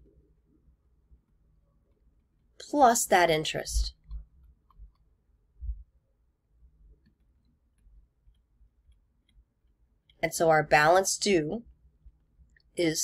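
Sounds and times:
soft low thump: 0:05.6 - 0:05.9.

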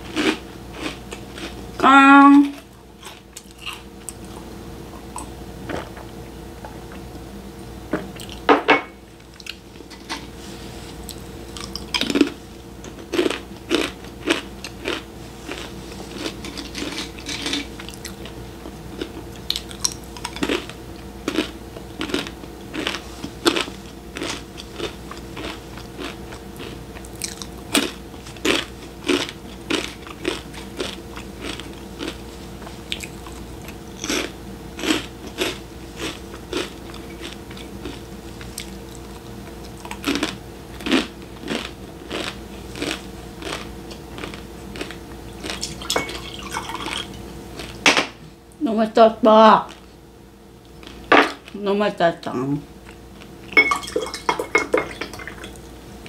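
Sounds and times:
crunching crisp snacks: 0:00.0 - 0:01.6, 0:02.6 - 0:04.4, 0:11.0 - 0:45.9
faint steady hum: 0:00.0 - 0:56.0.

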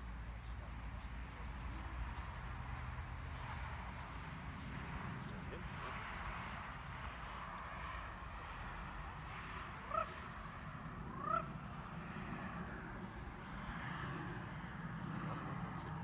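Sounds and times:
rising animal calls: 0:09.8 - 0:10.2, 0:11.0 - 0:11.6.

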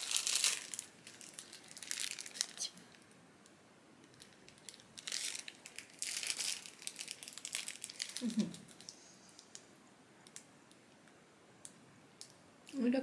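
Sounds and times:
plastic wrapper crinkling: 0:00.0 - 0:03.1, 0:04.0 - 0:10.5.

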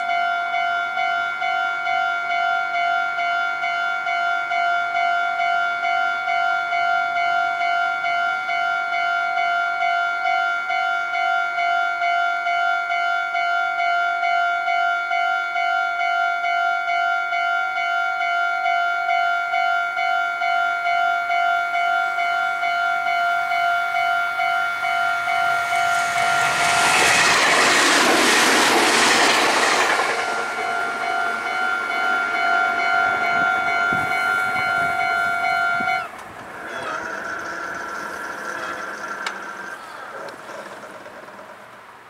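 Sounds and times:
level crossing bell ringing: 0:15.2 - 0:26.8, 0:30.2 - 0:36.1
electric train rushing past: 0:21.8 - 0:41.9.

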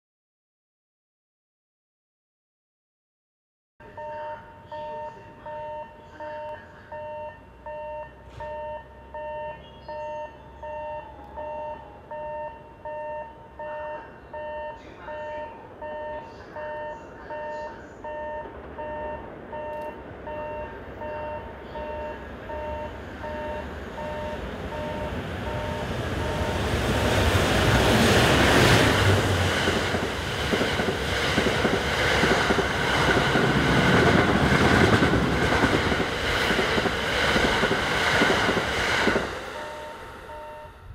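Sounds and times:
two-tone electronic warning beeps: 0:03.8 - 0:26.8, 0:39.5 - 0:40.9
train passing close by: 0:03.8 - 0:40.9.

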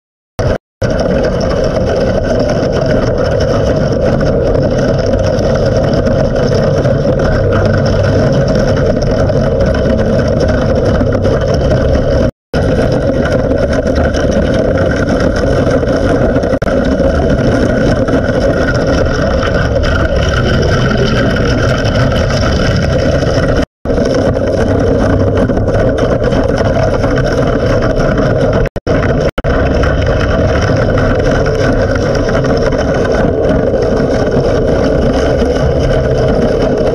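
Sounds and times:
underwater brush machine drone: 0:00.4 - 0:36.9.

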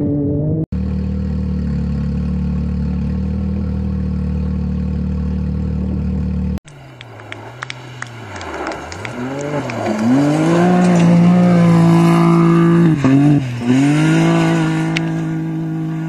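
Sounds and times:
utility vehicle engine idling: 0:00.8 - 0:13.6
utility vehicle racing on gravel: 0:00.8 - 0:16.0
sharp ticks: 0:06.7 - 0:10.1.

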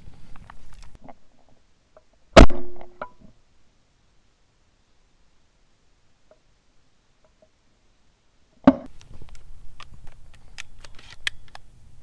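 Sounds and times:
shotgun shot: 0:02.4 - 0:02.9
sharp clicks and crunches: 0:08.8 - 0:11.7.

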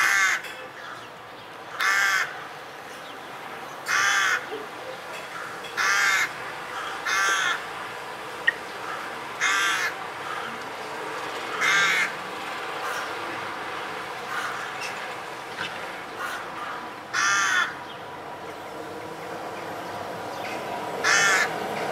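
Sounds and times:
crows cawing: 0:00.0 - 0:01.1, 0:01.7 - 0:02.6, 0:03.8 - 0:07.8, 0:08.4 - 0:10.8, 0:11.5 - 0:12.2, 0:12.8 - 0:13.2, 0:14.2 - 0:15.0, 0:15.6 - 0:17.8, 0:21.0 - 0:21.8.

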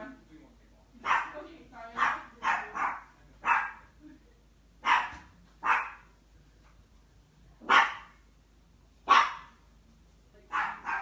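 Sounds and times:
dog barking: 0:01.0 - 0:01.4, 0:02.0 - 0:03.9, 0:04.8 - 0:06.1, 0:07.6 - 0:08.2, 0:09.0 - 0:09.6, 0:10.5 - 0:11.0.

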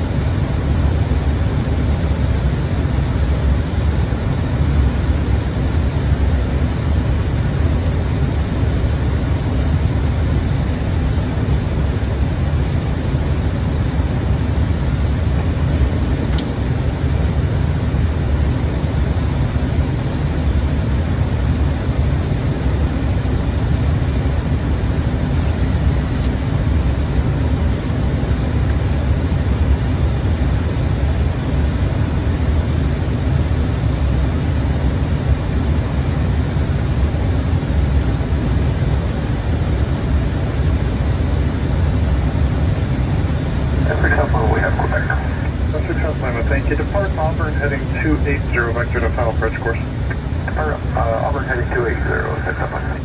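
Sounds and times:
aircraft cabin rumble: 0:00.0 - 0:53.0.

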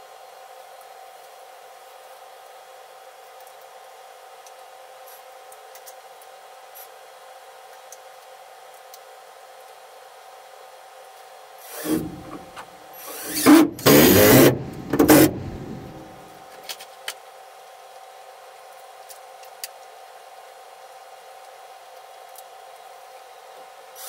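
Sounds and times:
tool working wood: 0:11.7 - 0:16.3.

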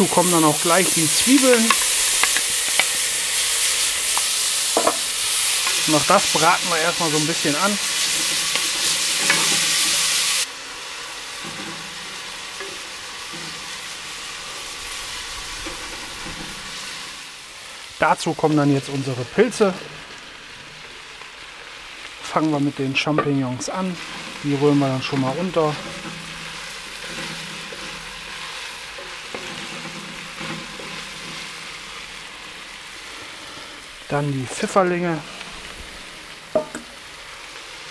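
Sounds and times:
bacon and onions sizzling: 0:00.0 - 0:37.9
wooden spatula stirring: 0:23.0 - 0:31.8.

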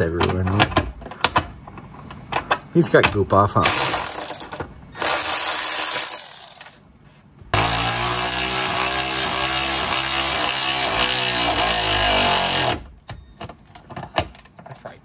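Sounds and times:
cordless electric ratchet running: 0:03.6 - 0:06.8, 0:07.6 - 0:12.8.

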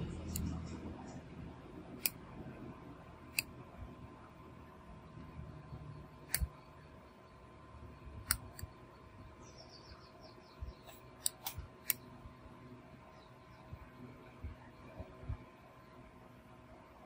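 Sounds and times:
faint background hum: 0:00.0 - 0:17.0.

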